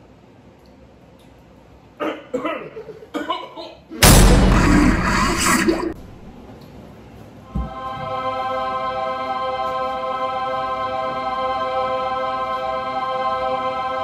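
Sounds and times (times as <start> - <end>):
low thump: 4.0 - 6.3
music with sustained chord tones: 7.8 - 14.0.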